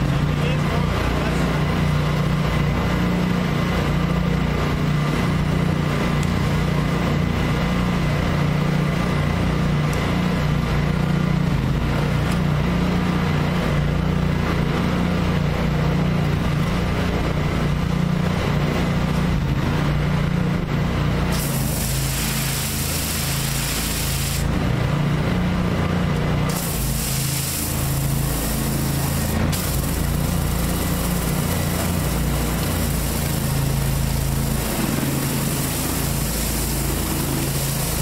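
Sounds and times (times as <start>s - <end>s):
pressure washer engine running: 0.0s - 38.0s
high-pressure water spray hissing: 21.3s - 24.6s, 26.5s - 38.0s.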